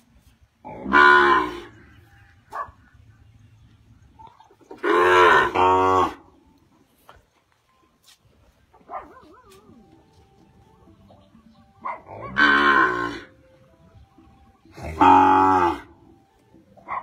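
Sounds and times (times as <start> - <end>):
cattle mooing: 0.7 - 1.9, 4.8 - 6.2, 12.1 - 13.4, 14.8 - 16.0.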